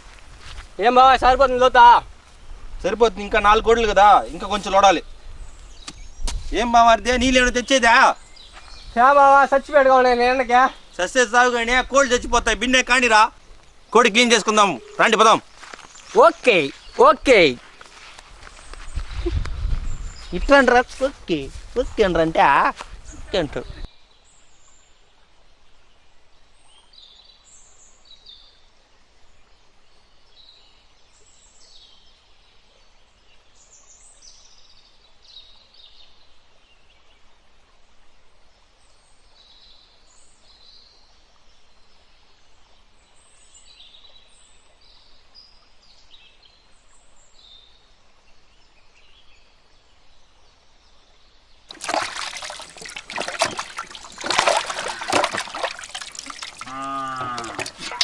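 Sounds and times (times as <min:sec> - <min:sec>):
birds chirping: 0:00.0 - 0:25.0, 0:42.8 - 0:58.0
water splashing in a steel pot: 0:51.7 - 0:58.0.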